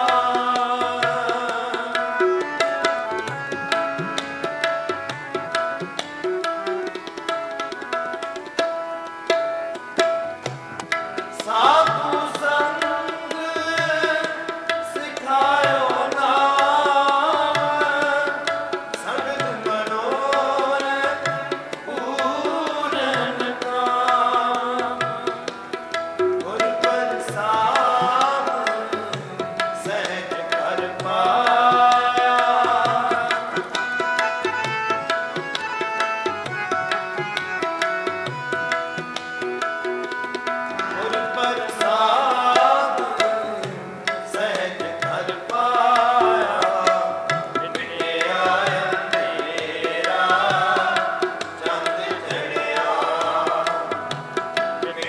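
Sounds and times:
man singing: 0:00.0 - 0:03.3, 0:11.3 - 0:25.6, 0:26.4 - 0:35.0, 0:40.8 - 0:55.0
tabla playing: 0:00.0 - 0:55.0.

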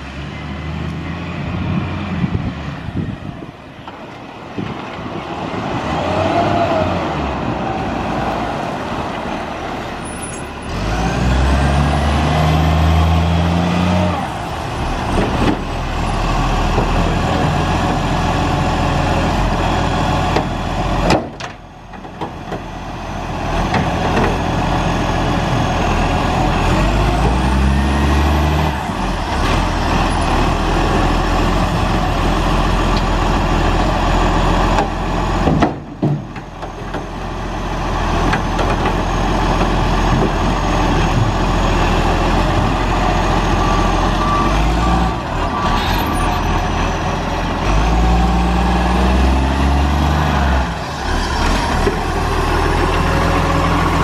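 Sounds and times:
garbage truck diesel engine revving: 0:10.5 - 0:21.0, 0:22.7 - 0:35.5, 0:36.8 - 0:54.0.

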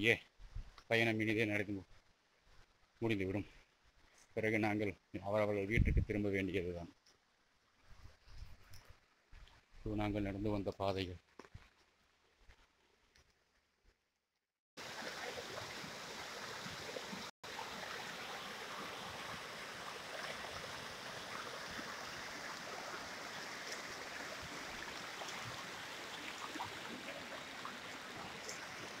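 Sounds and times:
water rushing over rocks: 0:14.8 - 0:29.0.

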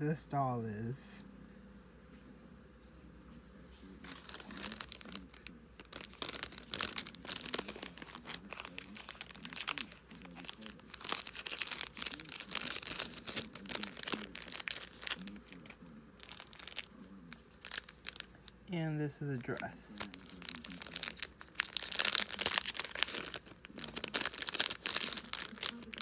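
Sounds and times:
plastic packaging crinkling: 0:04.0 - 0:18.6, 0:19.4 - 0:26.0.

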